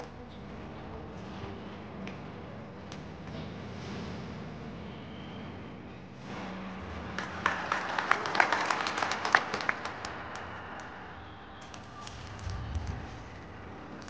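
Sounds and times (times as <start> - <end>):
audience clapping: 6.9 - 13.0.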